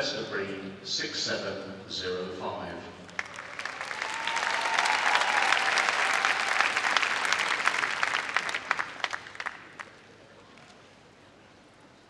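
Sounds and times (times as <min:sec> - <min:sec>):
audience applauding: 0:03.1 - 0:10.1.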